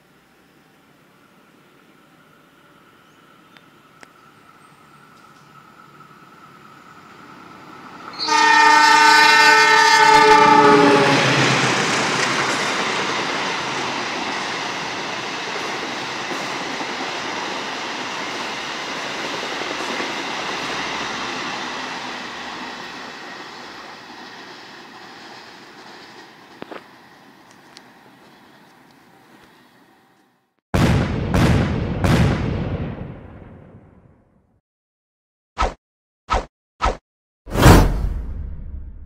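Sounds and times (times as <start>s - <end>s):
train horn blast: 8.1s - 11.5s
train wheels rumbling on rails: 10.3s - 29.5s.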